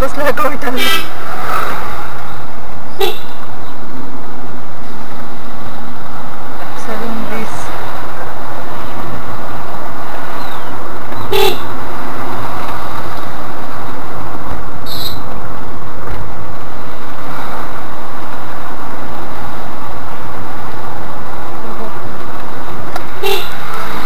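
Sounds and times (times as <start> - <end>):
road and engine noise in car: 0.0 - 24.0
car horn toot: 3.0 - 3.4, 11.2 - 11.7, 14.9 - 15.2, 23.2 - 23.6.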